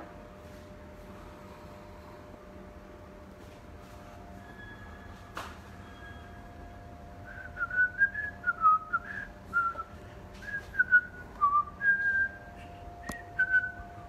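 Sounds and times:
faint steady hum: 0.0s - 14.0s
person whistling a tune: 7.2s - 13.8s.

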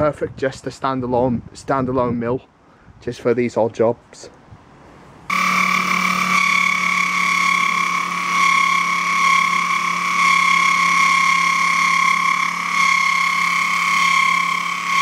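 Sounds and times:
milling machine cutting metal whine: 5.3s - 15.0s.

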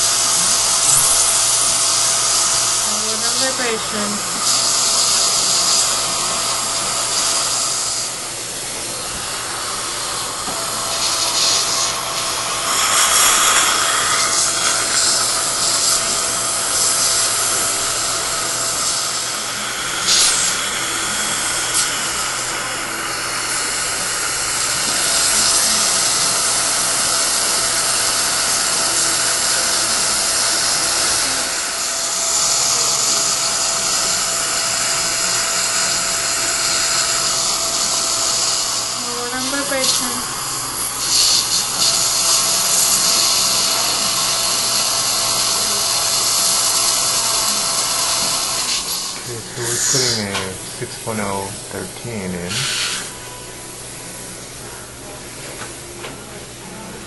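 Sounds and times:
surgical drill motor whine: 0.0s - 53.4s
hiss of water irrigation: 41.0s - 50.5s, 52.5s - 53.2s.

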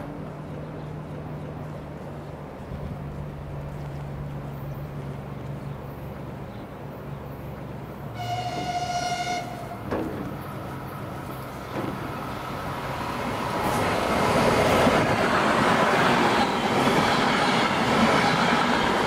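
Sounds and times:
electric train rumbling: 0.0s - 19.0s
train horn blast: 8.1s - 9.9s.

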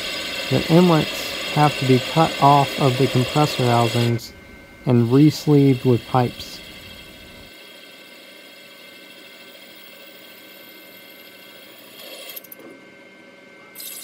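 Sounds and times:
lathe machine whine: 0.0s - 12.4s
high whine falling in pitch: 0.5s - 7.5s.

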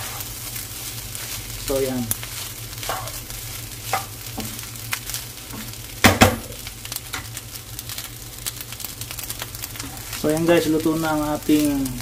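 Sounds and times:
utensil scraping a pan: 0.0s - 0.4s, 2.3s - 4.1s
rice sizzling in a pan: 0.0s - 12.0s.

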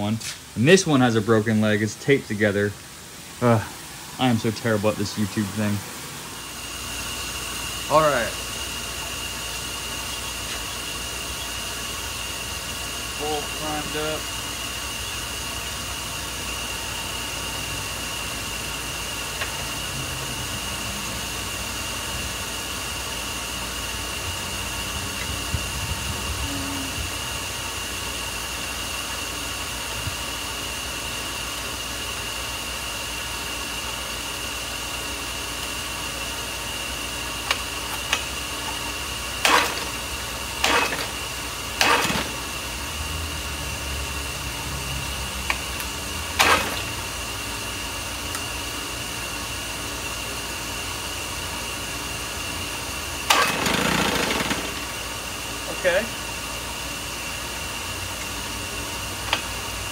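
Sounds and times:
outboard pull-start cord whirring: 39.4s - 42.7s, 45.5s - 47.1s, 53.2s - 55.1s.

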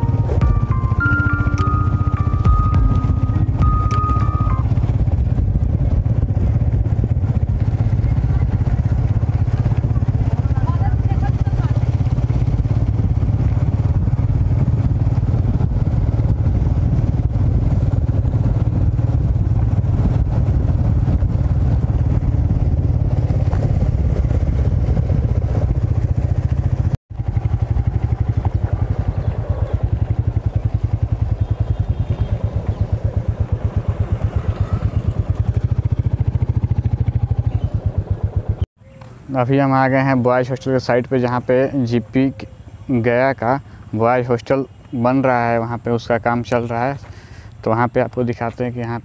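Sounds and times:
motorcycle engine running: 0.0s - 38.6s.

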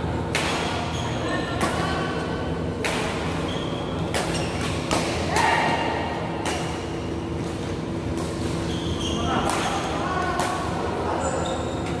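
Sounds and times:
rackets striking shuttlecock: 0.3s - 0.9s, 2.8s - 3.3s, 4.0s - 5.5s, 6.4s - 8.4s.

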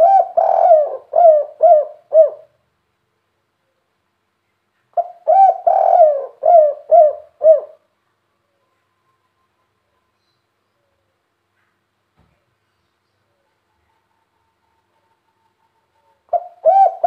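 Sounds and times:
dove cooing: 0.0s - 2.6s, 5.0s - 7.9s, 16.0s - 17.0s.

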